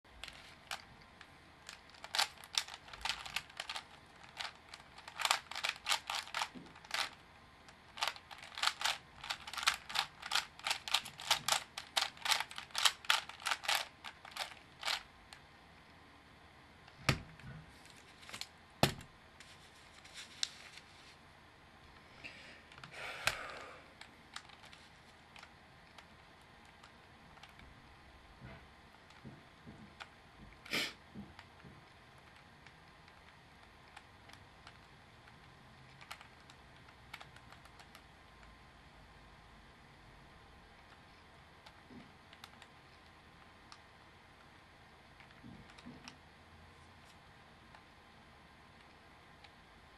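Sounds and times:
plastic puzzle cube clicking: 1.6 - 7.2, 7.9 - 15.0, 25.4 - 27.6, 33.0 - 38.0
soft rustle: 19.4 - 21.3.

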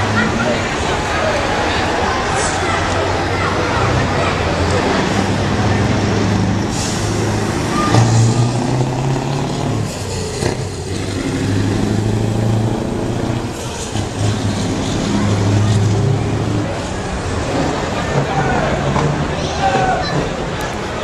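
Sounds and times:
truck engine revving: 0.0 - 21.0
air brake hisses: 6.7 - 8.3.

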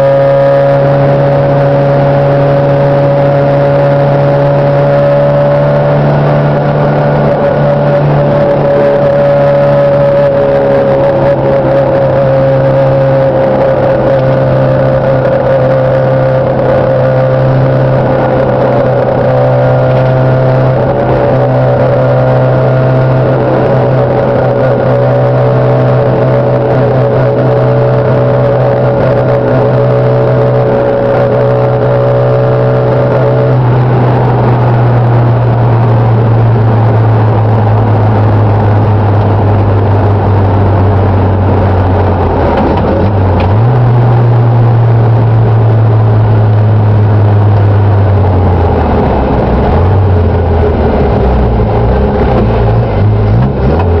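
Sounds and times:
car engine running: 0.0 - 54.0
high whine: 0.0 - 54.0
road noise: 0.0 - 54.0.

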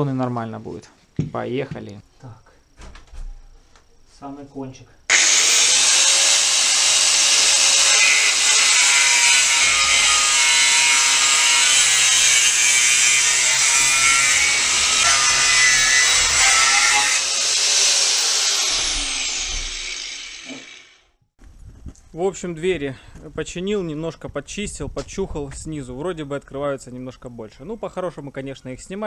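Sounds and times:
angle grinder grinding: 5.1 - 21.0
grinder disc winding down: 18.2 - 21.0.

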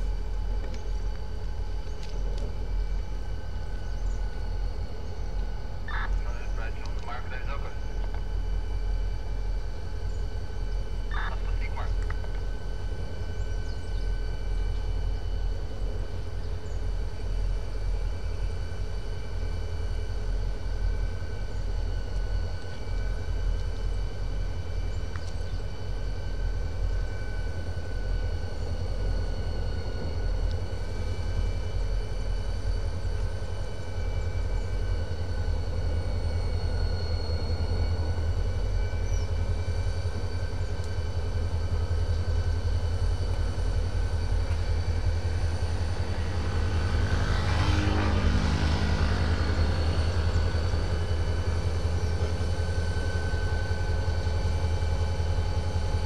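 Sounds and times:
locomotive engine rumbling: 0.0 - 16.8
high-pitched whine: 0.0 - 56.0.

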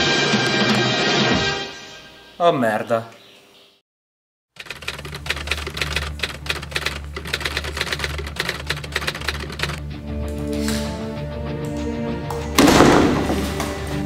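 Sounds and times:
rapid typewriter key clicks: 4.6 - 9.8
sustained music tones: 9.6 - 14.0.

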